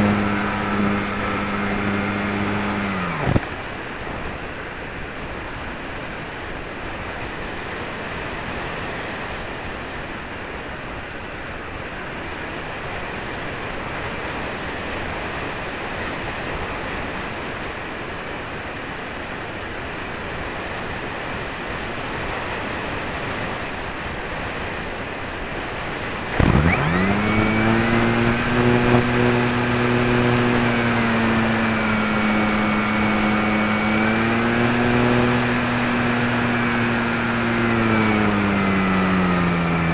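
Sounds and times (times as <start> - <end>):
electric motor and propeller whine: 0.0 - 4.6, 25.8 - 39.9.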